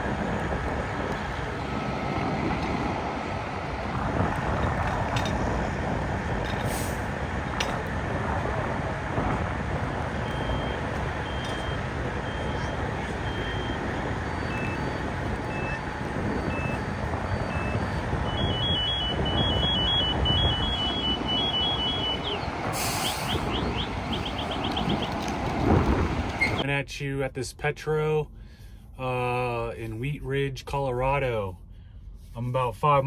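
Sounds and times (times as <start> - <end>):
truck driving: 0.0 - 31.8
high electronic beeps: 10.2 - 25.2.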